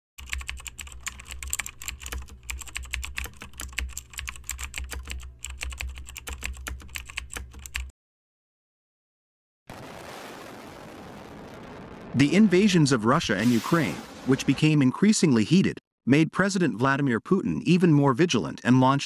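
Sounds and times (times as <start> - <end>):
fast keyboard typing: 0.2 - 7.9.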